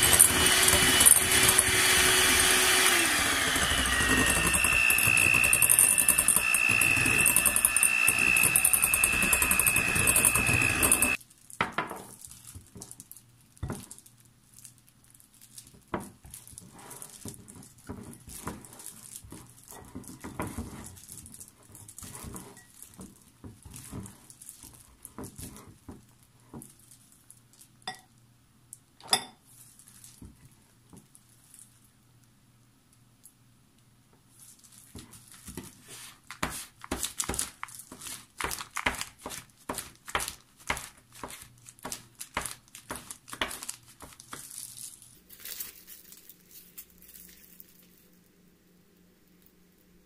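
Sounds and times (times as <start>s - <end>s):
electric hand mixer whining: 0.0s - 11.2s
spatula scraping glass bowl: 0.0s - 11.2s.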